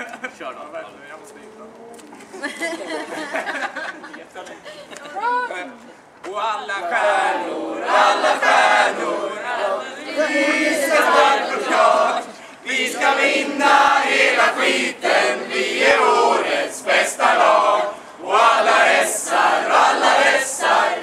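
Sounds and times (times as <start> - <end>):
group chanting a cheer: 6.8 - 21.0.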